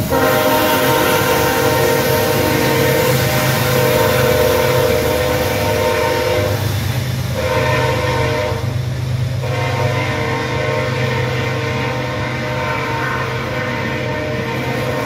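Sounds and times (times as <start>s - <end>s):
locomotive air horn blasts: 0.0s - 6.7s, 7.3s - 8.8s, 9.4s - 15.0s.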